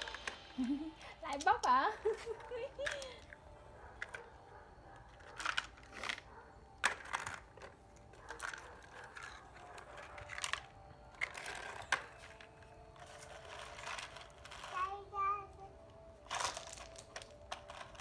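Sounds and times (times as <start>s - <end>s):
stones clattering in plastic toy: 1.3s - 3.4s, 5.1s - 14.8s, 16.2s - 18.0s.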